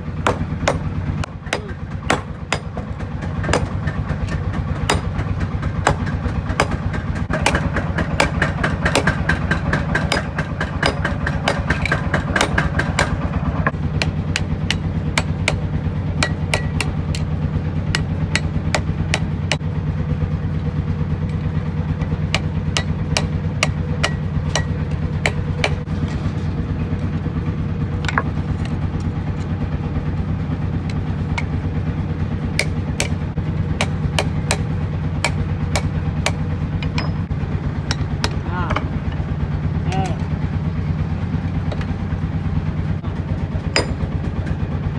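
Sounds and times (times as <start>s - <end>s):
steady low hum: 0.0s - 44.9s
hammer striking metal on anvil: 0.2s - 19.6s, 22.3s - 25.9s, 32.6s - 33.2s, 33.8s - 37.3s, 37.9s - 39.2s, 43.8s - 44.1s.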